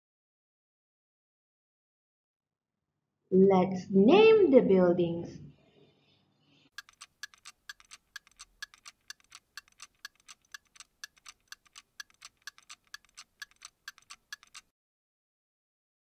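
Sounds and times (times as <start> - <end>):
clock ticking: 6.7 - 14.7.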